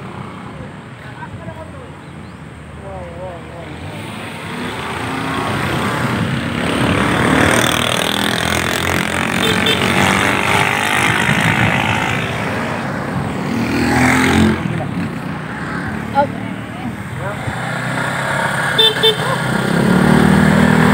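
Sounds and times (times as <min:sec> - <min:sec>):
wind rushing over microphone: 0:09.8 - 0:16.0.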